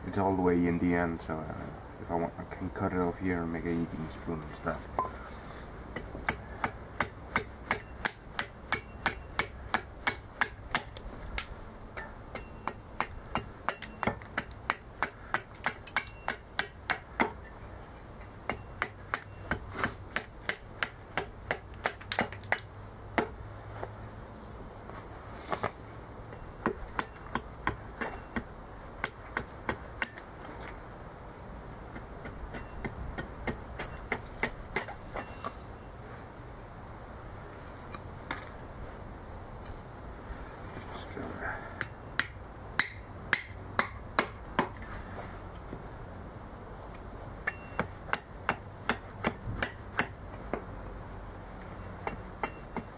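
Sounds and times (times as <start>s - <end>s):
hatchet chopping wood: 6.0s - 17.5s, 18.4s - 23.4s, 26.6s - 30.2s, 31.9s - 35.4s, 41.8s - 44.8s, 47.4s - 50.6s, 52.0s - 52.9s.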